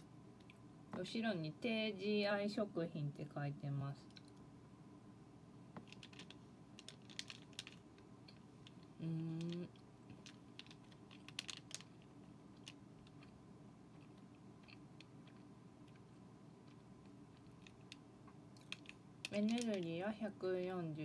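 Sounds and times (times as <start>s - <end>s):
crinkly clicks of eating: 0.4s - 0.6s, 4.0s - 4.5s, 5.8s - 20.0s
plastic wrapper handled: 5.8s - 8.0s, 10.1s - 13.2s, 18.6s - 19.9s
person humming: 9.0s - 9.7s.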